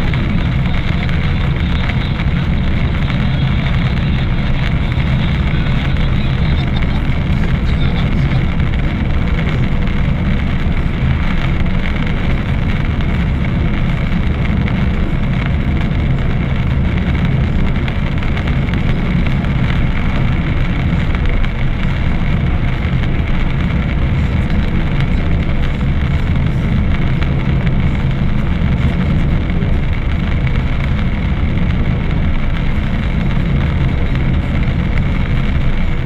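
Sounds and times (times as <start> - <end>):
car road rumble: 0.0 - 36.0
rain on windscreen: 0.0 - 36.0.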